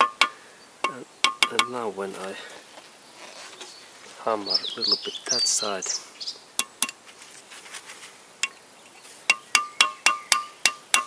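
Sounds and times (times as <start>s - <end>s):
hammer tapping metal drift: 0.0s - 1.8s, 9.3s - 11.0s.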